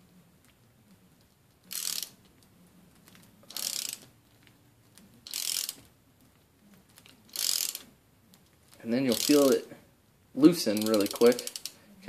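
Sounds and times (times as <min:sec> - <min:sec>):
ratchet wrench clicking: 0:01.7 - 0:02.2, 0:03.5 - 0:04.1, 0:05.2 - 0:05.9, 0:07.3 - 0:07.9, 0:09.1 - 0:09.6, 0:10.7 - 0:11.8.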